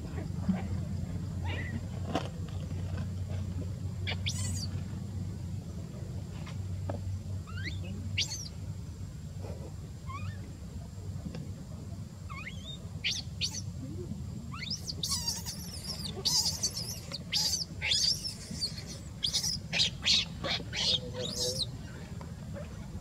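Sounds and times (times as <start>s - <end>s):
baby monkey squealing: 4.1s - 4.7s, 7.5s - 8.5s, 10.1s - 10.4s, 12.3s - 13.7s, 14.5s - 21.7s.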